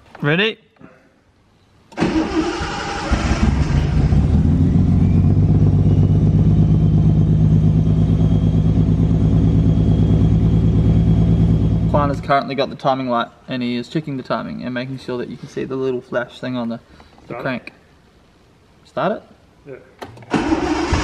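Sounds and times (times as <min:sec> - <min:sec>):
car engine cranking and running: 0:02.0 - 0:12.2, 0:20.2 - 0:21.0.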